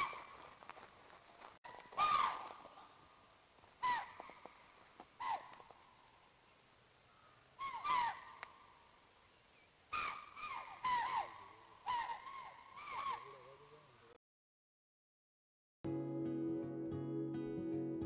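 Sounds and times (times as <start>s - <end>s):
animal calling: 1.9s - 2.7s, 3.8s - 4.5s, 7.6s - 8.5s, 9.9s - 13.5s.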